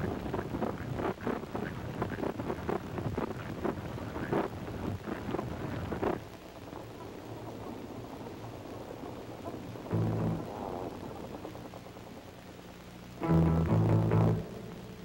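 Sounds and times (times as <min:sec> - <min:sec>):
rough rumbling noise: 0:00.0 - 0:15.0
soundtrack music with low notes: 0:09.9 - 0:10.6, 0:13.2 - 0:15.0
low chord: 0:09.9 - 0:10.8, 0:13.2 - 0:15.0.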